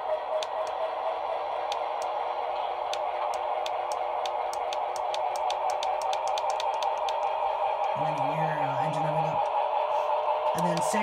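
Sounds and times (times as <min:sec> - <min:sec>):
sharp clicks: 0:00.4 - 0:00.8, 0:01.7 - 0:02.2, 0:02.9 - 0:08.3.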